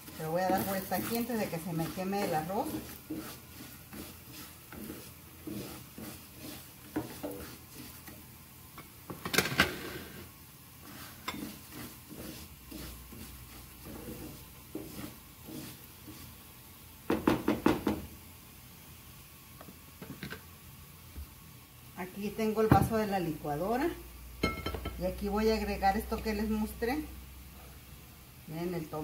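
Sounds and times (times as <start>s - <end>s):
spoon scraping rice in a pan: 0.0s - 9.3s, 9.9s - 16.6s
spoon knocking against pan: 17.1s - 18.1s, 24.4s - 25.0s.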